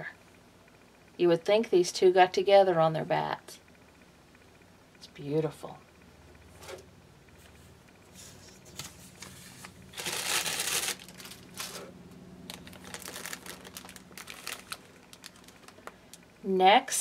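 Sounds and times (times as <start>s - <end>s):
plastic bags crinkling: 8.7s - 16.2s.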